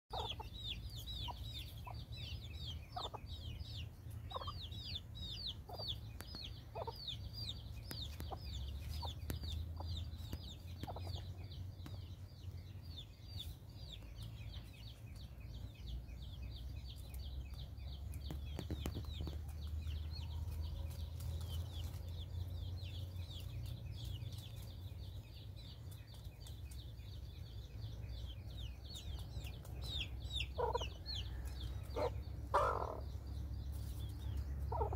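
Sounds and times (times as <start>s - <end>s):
rapid high-pitched chirping: 0.1s - 3.3s, 4.2s - 11.3s
chickens clucking: 0.1s - 34.9s.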